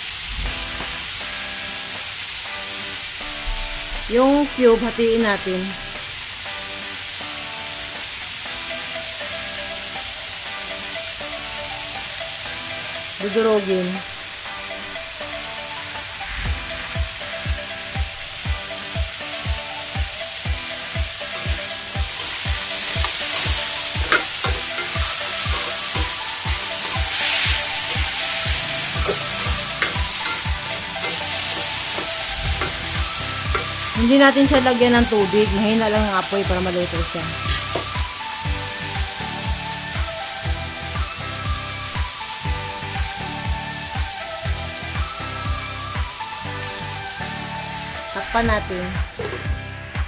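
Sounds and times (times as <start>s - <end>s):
potatoes sizzling in hot oil: 0.0s - 50.0s
metal spatula scraping pan: 21.4s - 34.0s, 37.2s - 38.0s.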